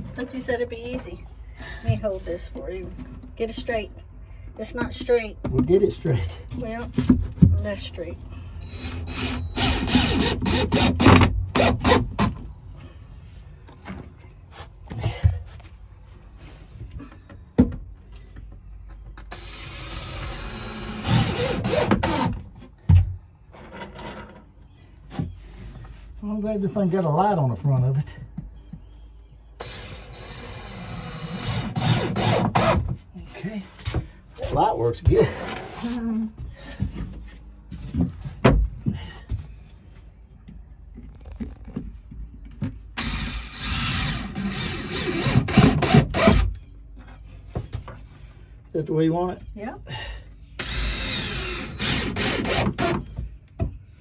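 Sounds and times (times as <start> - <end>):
cordless drill driving screw: 19.3 - 22.3, 50.6 - 52.9.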